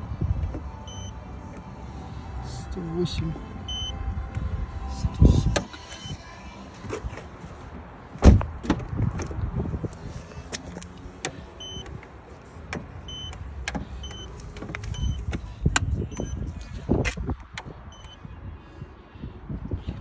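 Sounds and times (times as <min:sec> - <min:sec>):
loud thump: 0:08.2 - 0:08.8.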